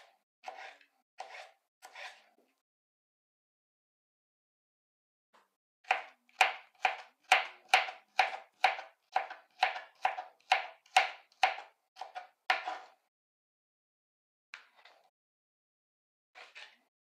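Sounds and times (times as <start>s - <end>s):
knife chopping on cutting board: 0.0s - 2.3s, 5.8s - 13.0s.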